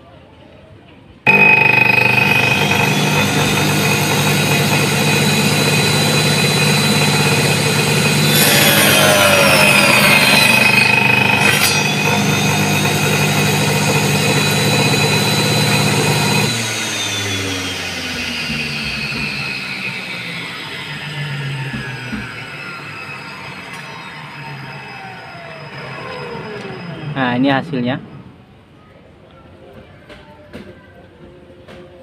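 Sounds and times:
blade cutting through wood: 0:01.3 - 0:20.6
saw motor whining: 0:01.3 - 0:27.6.

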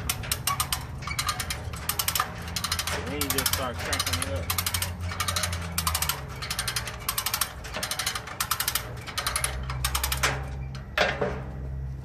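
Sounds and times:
ratchet pawl clicking: 0:00.0 - 0:10.3.

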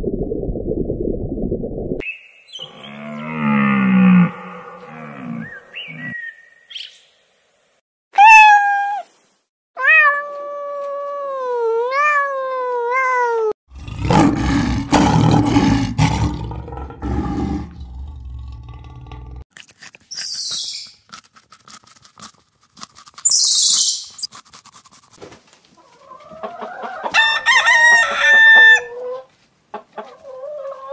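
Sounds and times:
lion roaring: 0:02.7 - 0:05.5, 0:13.7 - 0:19.4
kitten meowing: 0:08.2 - 0:09.0, 0:09.8 - 0:13.5.

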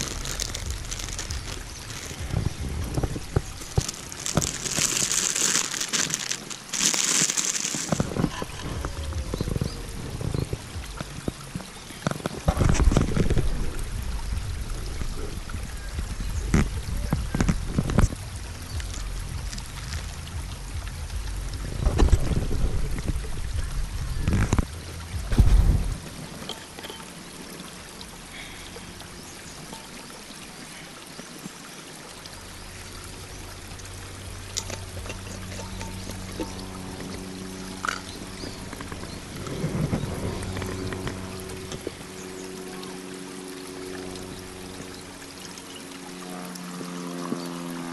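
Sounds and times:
handling rustles and clicks: 0:00.0 - 0:08.4
low steady hum: 0:00.0 - 0:47.9
stream water rushing: 0:00.0 - 0:47.9.

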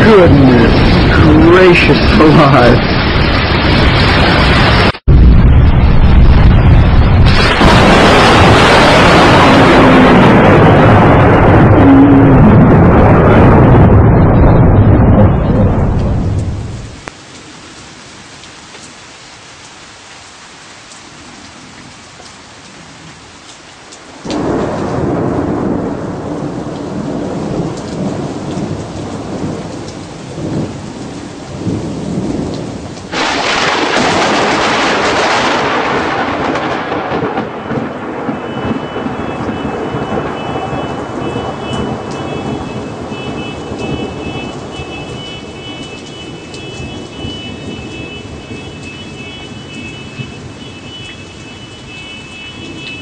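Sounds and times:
lightning strike crash: 0:00.0 - 0:16.9, 0:24.3 - 0:29.6, 0:33.1 - 0:43.1
thunder rumbling: 0:00.0 - 0:17.2, 0:24.1 - 0:51.9
rain falling: 0:00.0 - 0:53.0.

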